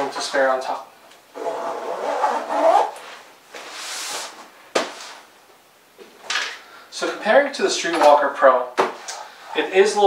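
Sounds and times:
zip drawn: 0:01.4 - 0:03.0.

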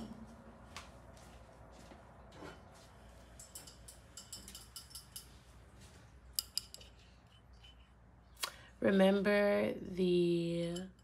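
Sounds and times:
cutlery clinking: 0:03.4 - 0:05.5, 0:06.3 - 0:07.9.

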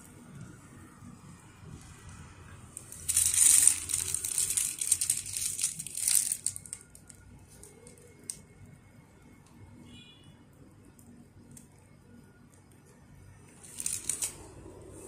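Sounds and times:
plastic piping bag crinkling: 0:02.8 - 0:08.4, 0:13.5 - 0:14.6.

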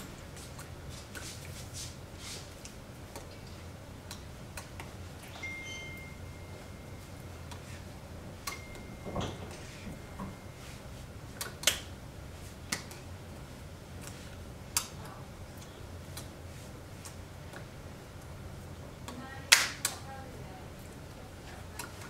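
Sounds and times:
steady low hum: 0:00.0 - 0:22.0
hands clicking and tapping: 0:12.7 - 0:13.0.

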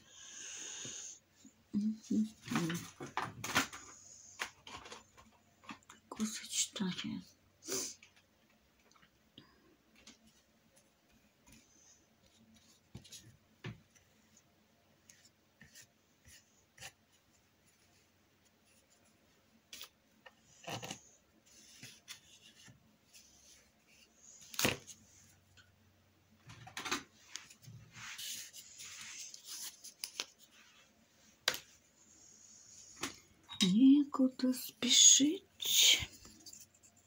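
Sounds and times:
painting materials scraping: 0:27.2 - 0:30.9.

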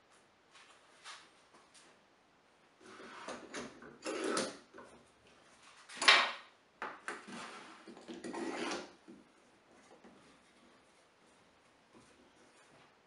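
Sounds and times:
clamps scraping and knocking on wood: 0:02.8 - 0:05.0, 0:05.8 - 0:09.2.

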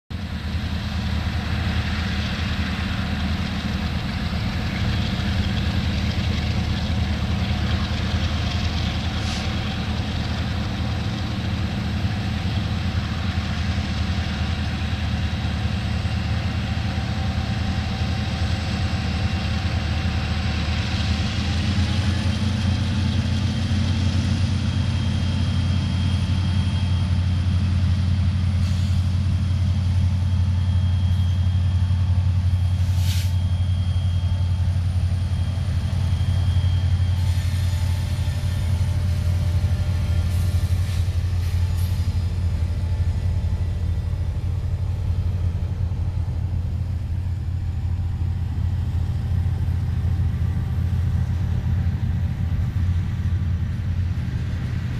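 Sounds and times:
locomotive engine drone with whine: 0:00.1 - 0:54.9.

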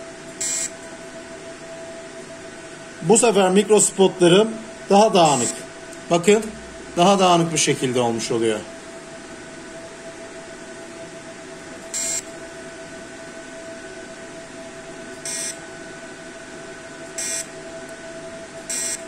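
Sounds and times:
machine hum: 0:00.0 - 0:19.0
high-pitched machine beeps: 0:00.4 - 0:00.7, 0:11.9 - 0:12.2, 0:15.2 - 0:15.6, 0:17.2 - 0:17.5, 0:18.7 - 0:19.0.

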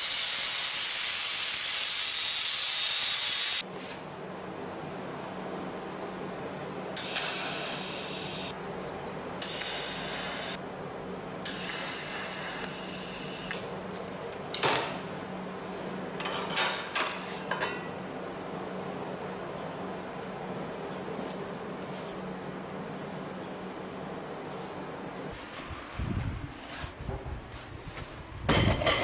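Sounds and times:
welding arc hissing: 0:00.0 - 0:03.6, 0:07.0 - 0:08.5, 0:09.4 - 0:10.6.

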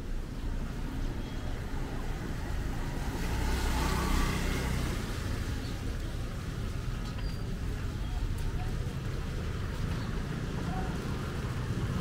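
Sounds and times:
vehicle passing by: 0:02.0 - 0:05.6.

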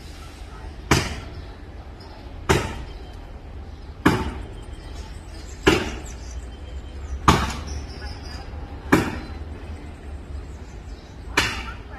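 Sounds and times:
axe chopping wood: 0:00.9 - 0:01.3, 0:02.5 - 0:02.9, 0:04.0 - 0:04.4, 0:05.6 - 0:06.0, 0:07.2 - 0:07.6, 0:08.9 - 0:09.2, 0:11.4 - 0:11.8.

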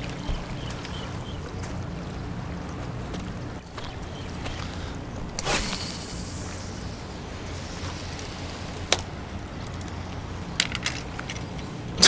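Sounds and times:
fishing line hissing off reel: 0:04.6 - 0:09.0
fishing rod swish: 0:05.3 - 0:08.2.

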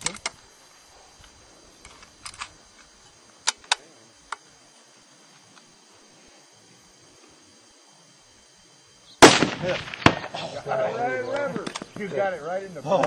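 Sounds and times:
sharp mechanical clicks: 0:01.8 - 0:04.4.

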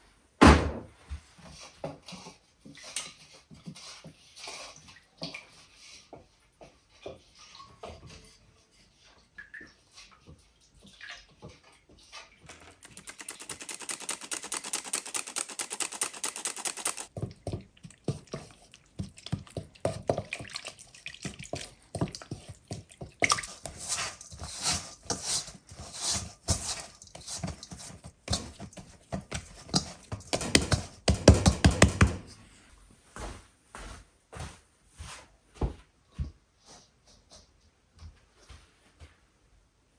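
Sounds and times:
fast scraping or stirring: 0:12.8 - 0:17.1, 0:17.8 - 0:31.1
light kitchen clicks and knocks: 0:29.7 - 0:32.4.

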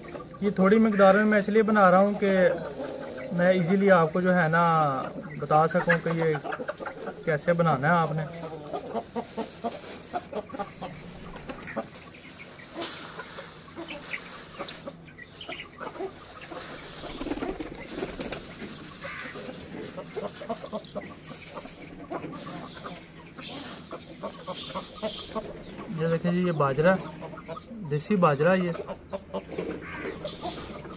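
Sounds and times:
chickens clucking: 0:00.0 - 0:30.9
plastic bag rustling: 0:06.0 - 0:12.0, 0:15.9 - 0:22.0.

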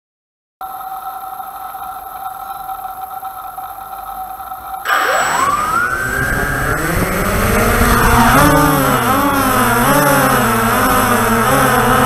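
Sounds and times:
drone propellers whining: 0:01.0 - 0:12.0
steady high tone: 0:04.7 - 0:10.7.

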